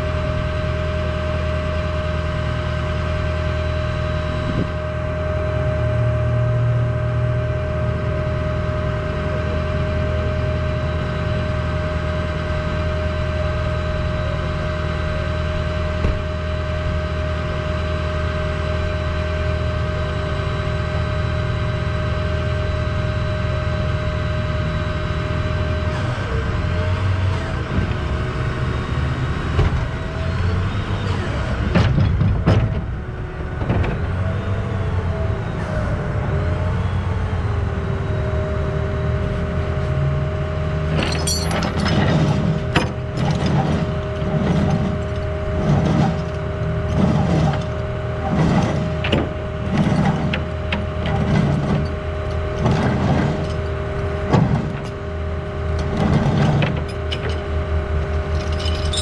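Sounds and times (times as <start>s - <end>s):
tow truck engine running: 0.0s - 59.0s
winch whine: 34.3s - 59.0s.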